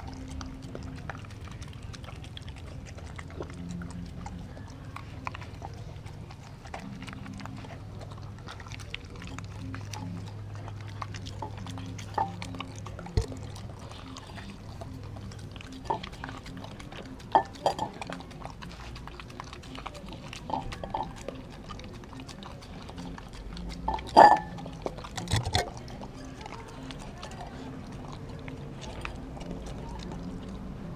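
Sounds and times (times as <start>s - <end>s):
dog chewing and licking: 0.0s - 30.9s
teeth knocking against glass bowl: 11.4s - 13.6s, 15.8s - 16.2s, 17.2s - 18.2s, 20.4s - 21.2s, 23.8s - 25.7s.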